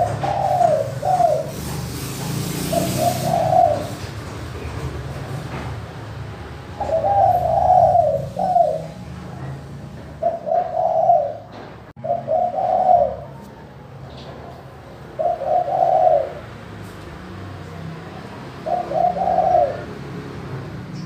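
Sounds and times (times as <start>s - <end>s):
dove cooing: 0.0s - 1.8s, 2.6s - 4.8s, 6.8s - 9.6s, 10.2s - 13.7s, 15.0s - 16.7s, 18.4s - 20.3s.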